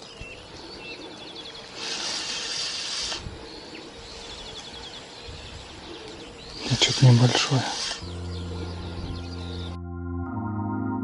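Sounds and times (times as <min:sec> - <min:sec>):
small birds calling: 0:00.0 - 0:09.8
hissing rush: 0:01.6 - 0:04.4, 0:06.6 - 0:08.1.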